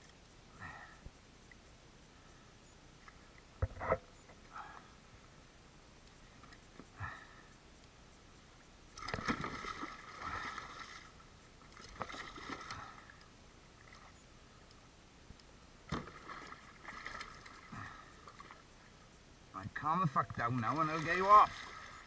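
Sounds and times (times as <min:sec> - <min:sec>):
water splashing against kayak: 0:09.0 - 0:14.2, 0:15.9 - 0:18.7, 0:20.3 - 0:22.0.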